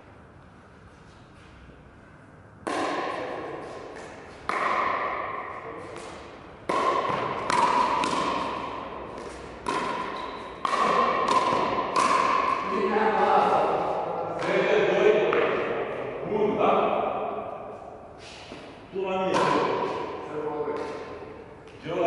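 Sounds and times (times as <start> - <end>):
paddles hitting plastic ball: 2.6 - 5.1, 5.9 - 12.7.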